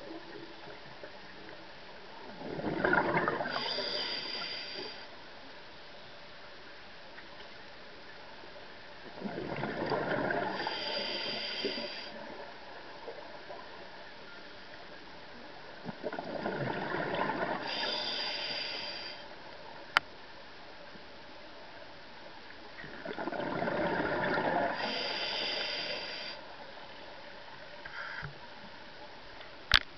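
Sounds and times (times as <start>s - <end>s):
steady low hiss: 0.0s - 2.5s, 3.3s - 23.1s, 23.7s - 29.9s
rush of regulator bubbles: 2.3s - 3.6s, 9.2s - 11.1s, 15.9s - 17.8s, 22.8s - 25.0s
underwater breath bubbles from regulator: 23.0s - 26.4s.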